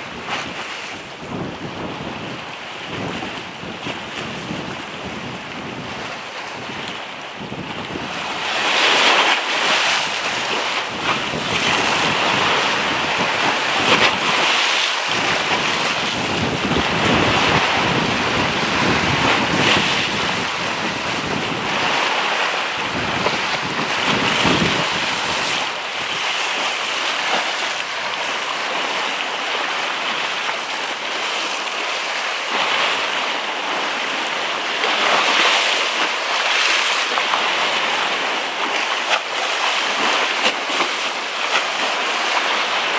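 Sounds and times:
wind buffeting microphone: 0.0 - 29.9
choppy sea: 0.0 - 42.9.

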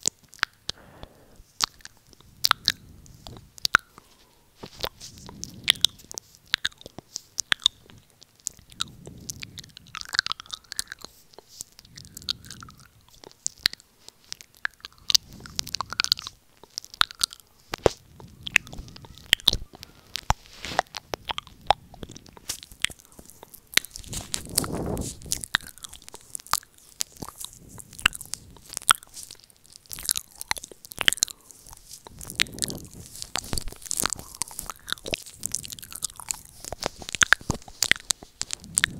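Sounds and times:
wet mouth clicks and smacks: 0.0 - 38.9
soft low swells: 0.7 - 6.2, 17.9 - 26.4, 31.5 - 37.8, 38.4 - 38.9.

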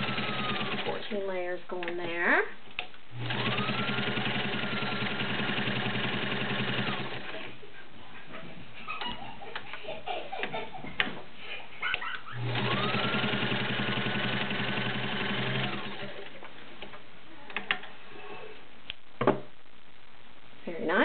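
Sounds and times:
sewing machine running: 0.0 - 1.1, 3.2 - 7.5, 12.3 - 16.4.

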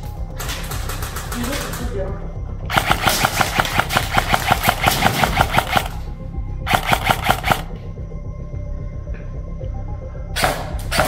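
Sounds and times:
airsoft rifle firing full auto: 2.7 - 6.0, 6.7 - 7.7.

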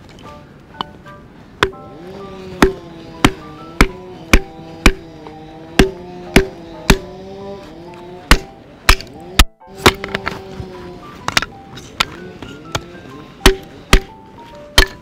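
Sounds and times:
background music: 0.0 - 15.0
hatchet knocking on wooden block: 2.6 - 5.0, 5.8 - 7.1, 8.3 - 10.1, 13.4 - 14.1.

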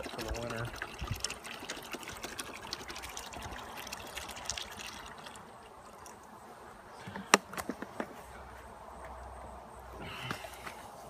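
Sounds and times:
liquid trickling and splashing: 0.0 - 6.4.

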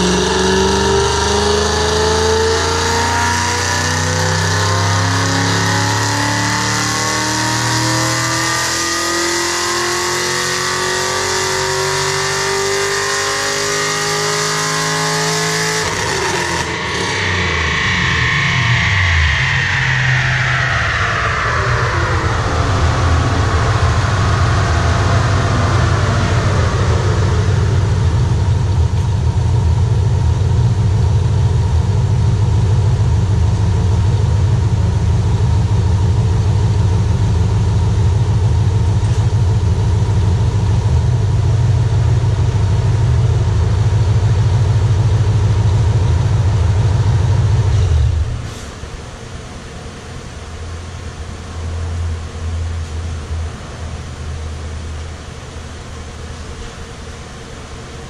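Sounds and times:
engine whine coasting down: 0.0 - 58.0
engine idle rumble: 18.8 - 58.0.

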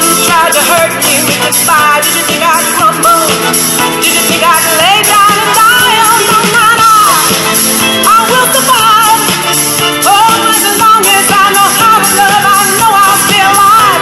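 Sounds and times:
loud dance music: 0.0 - 14.0
person singing: 0.0 - 14.0.

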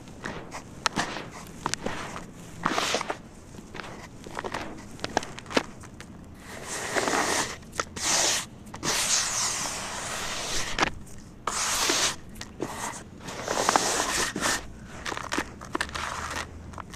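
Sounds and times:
gritty hissing powder rushes: 0.0 - 5.0, 6.4 - 10.8, 11.5 - 15.1
cement powder crackling: 0.0 - 16.9.

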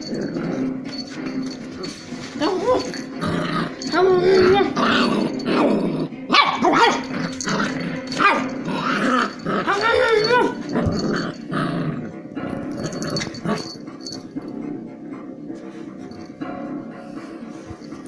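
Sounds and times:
puppy growling: 0.0 - 18.0
puppy yipping and barking: 6.3 - 7.1.

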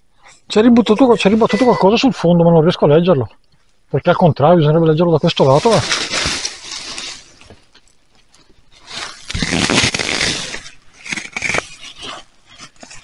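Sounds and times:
dry leaves rustling and crunching: 5.3 - 10.8
short scrapes: 8.8 - 13.0.

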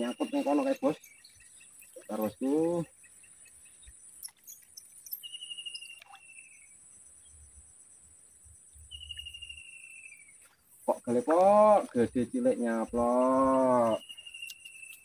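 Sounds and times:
bird trilled whistled calls: 0.0 - 7.4, 8.7 - 10.5, 12.7 - 15.0
insects chirring: 0.0 - 15.0.

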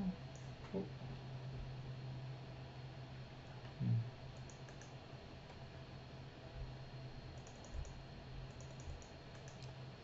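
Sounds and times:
low steady hum: 0.0 - 10.0
computer mouse clicking: 0.3 - 0.5, 4.4 - 5.0, 7.3 - 9.8.

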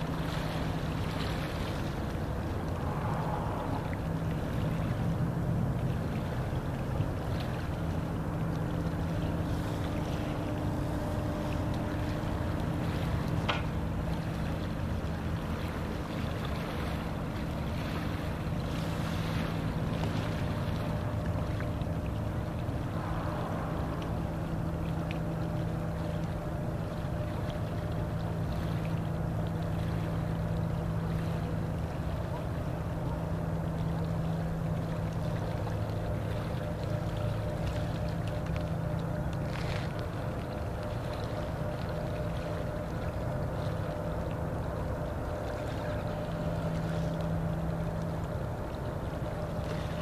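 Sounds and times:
wind on microphone: 0.0 - 6.5, 22.2 - 26.2
boat motor humming: 0.0 - 50.0.

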